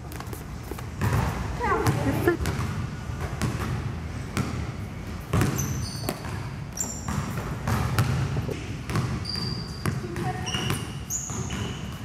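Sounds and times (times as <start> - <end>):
basketball bouncing on gym floor: 0.1 - 12.0
sneakers squeaking on floor: 4.4 - 12.0.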